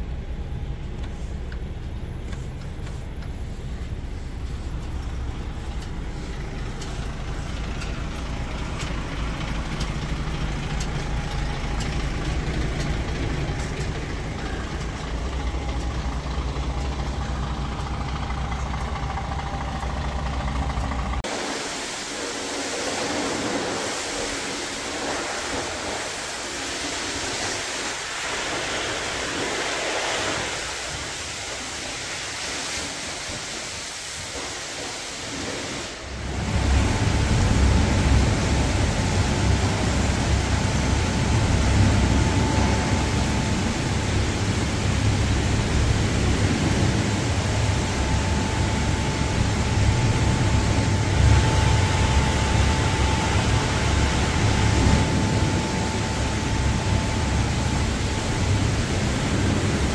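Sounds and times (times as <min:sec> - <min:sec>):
low rumble with whine: 0:00.0 - 0:21.9, 0:35.3 - 0:59.9
truck diesel engine idling: 0:00.1 - 0:21.3, 0:36.0 - 0:59.9
steady rushing hiss: 0:00.7 - 0:59.9.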